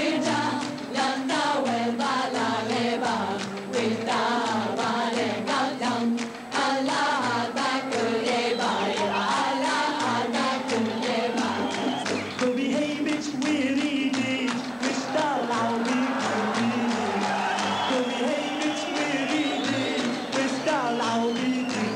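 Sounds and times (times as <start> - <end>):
woman singing lead: 0.0 - 12.0
choir singing: 0.0 - 12.3, 13.7 - 21.9.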